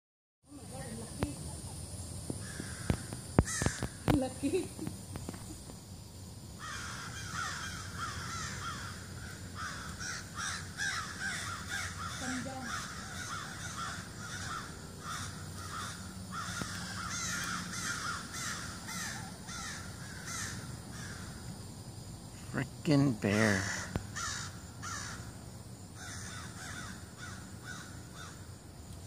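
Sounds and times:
birds harsh alarm calls: 2.4 - 4.2, 6.6 - 21.6, 22.5 - 28.5.

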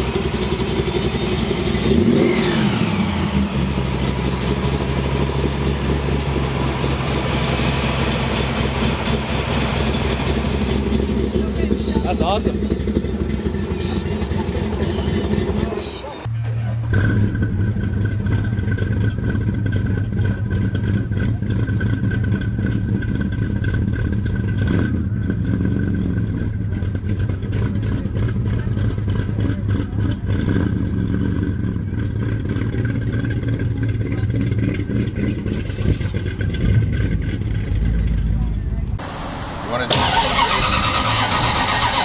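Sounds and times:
car exhaust rumbling: 0.0 - 42.0.

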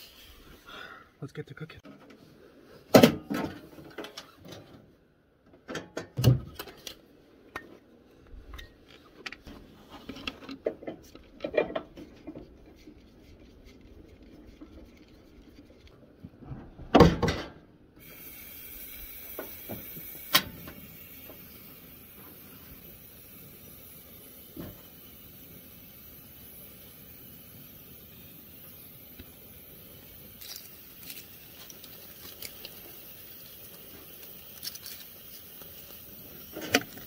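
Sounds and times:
propane gas hissing: 0.0 - 1.1, 18.0 - 37.0
knocks and clatter of grill: 2.9 - 4.9, 5.5 - 6.8, 9.4 - 12.6, 16.3 - 17.7, 36.4 - 37.0.

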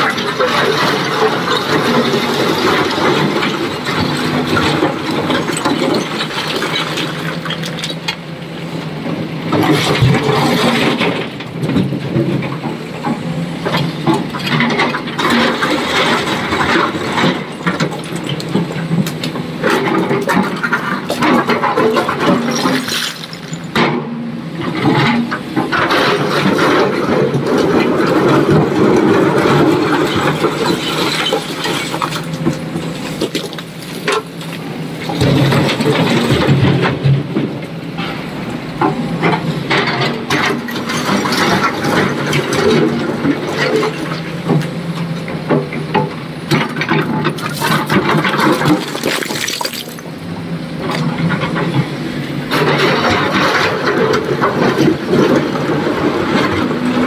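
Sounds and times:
excavator diesel engine under load: 0.0 - 57.0
rocks crashing into steel truck body: 46.6 - 50.0.

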